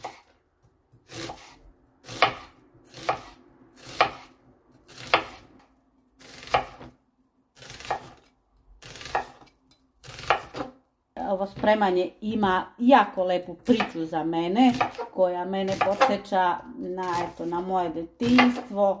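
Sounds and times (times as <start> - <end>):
knife slicing onion on board: 0.0 - 5.6, 6.2 - 7.0, 7.6 - 10.8, 13.6 - 16.3, 16.9 - 19.0.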